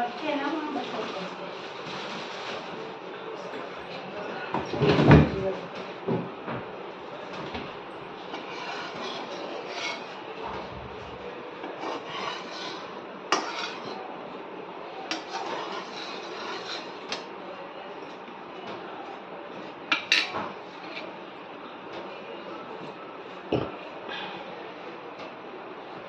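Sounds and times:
metal spatula scraping pan: 8.3 - 10.2, 11.7 - 14.0, 15.1 - 17.2.

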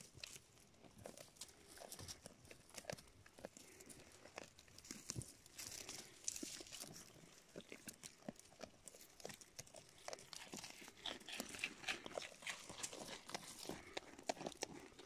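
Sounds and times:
goats stepping through dry twigs: 1.0 - 15.0
twigs crunching and snapping: 4.4 - 14.8.

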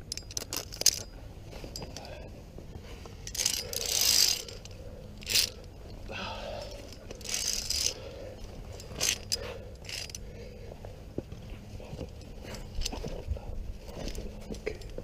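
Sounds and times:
carabiner scraping on steel cable: 0.0 - 2.3, 3.0 - 6.0, 6.6 - 10.3.

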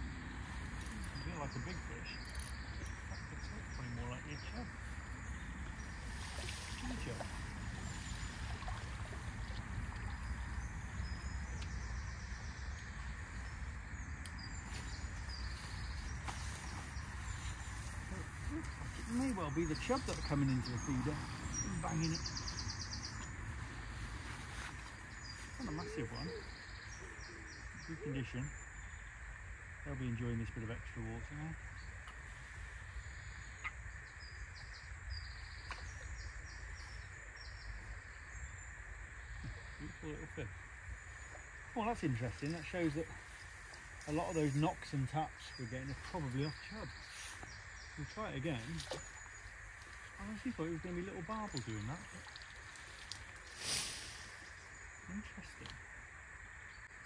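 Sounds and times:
faint bird chirps: 0.4 - 29.1, 29.8 - 55.9
faint click: 35.6 - 35.9.

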